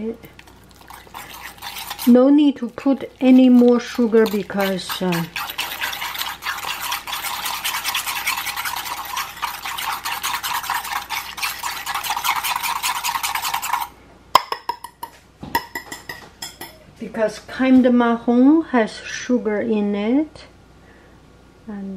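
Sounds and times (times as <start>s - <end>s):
wire whisk scraping ceramic bowl: 0.7s - 13.9s.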